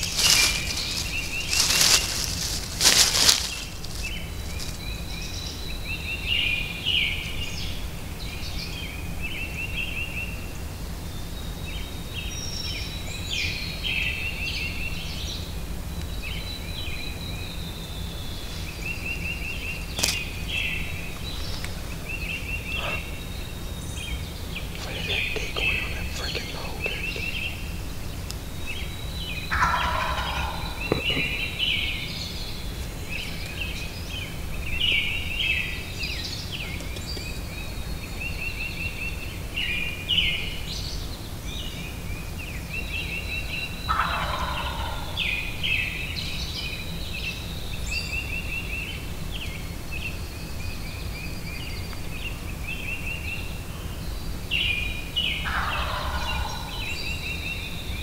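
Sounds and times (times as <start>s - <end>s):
turkey gobbling: 0.0s - 4.7s, 21.6s - 23.2s, 29.5s - 31.9s, 43.9s - 45.4s, 55.4s - 56.9s
songbirds singing and trilling: 0.0s - 58.0s.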